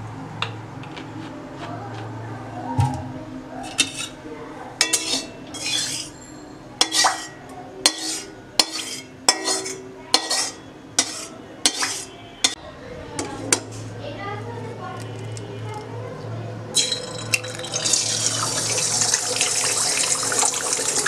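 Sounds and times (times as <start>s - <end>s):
metal spatula scraping a wok: 3.6s - 4.2s, 4.8s - 6.2s, 6.8s - 12.6s.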